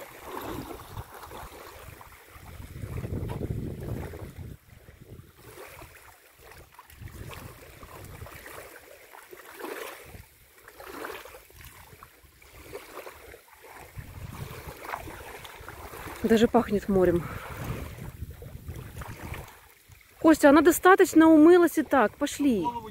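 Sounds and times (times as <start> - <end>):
wind rumbling on microphone: 0.0 - 8.7, 13.8 - 22.9
shallow water splashing: 0.0 - 22.9.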